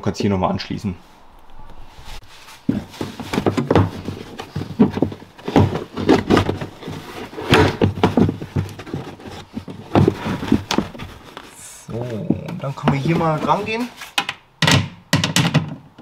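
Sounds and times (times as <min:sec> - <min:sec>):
carpeted panel rustling and scraping: 0:02.0 - 0:14.2.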